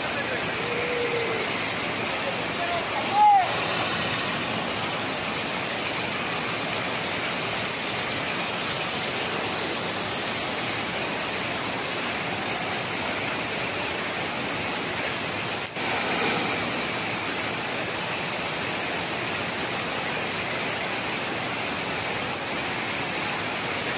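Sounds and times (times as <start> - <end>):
water rushing over a weir: 0.0 - 23.9.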